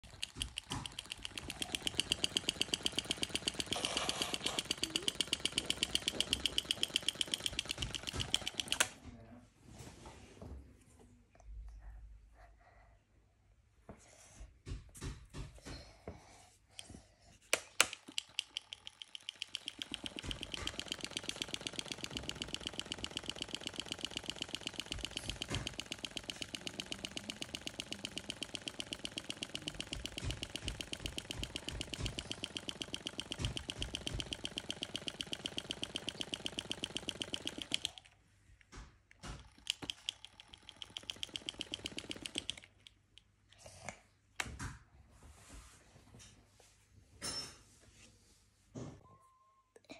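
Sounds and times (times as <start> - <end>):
toy fan motor ticking: 0.0 - 9.0, 16.8 - 38.2, 39.2 - 43.3.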